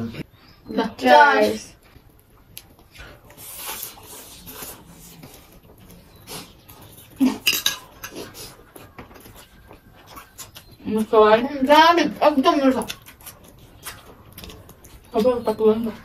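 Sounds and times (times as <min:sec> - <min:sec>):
people slurping and chewing noodles: 0:01.1 - 0:16.0
utensils clicking on plates: 0:07.3 - 0:08.4.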